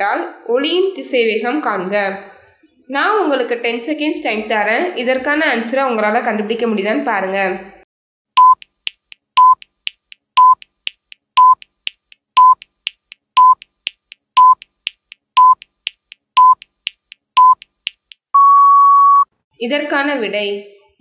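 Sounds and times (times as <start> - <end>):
countdown beeps with clicks: 8.4 - 19.3.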